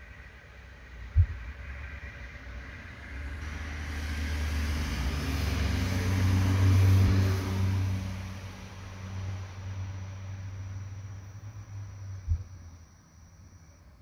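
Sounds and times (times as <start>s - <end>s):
vehicle engine passing: 3.0s - 12.1s.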